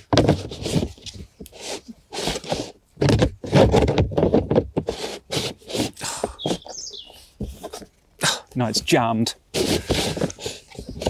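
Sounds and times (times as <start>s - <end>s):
plastic door scraping against threads: 0.0s - 6.8s, 9.5s - 11.0s.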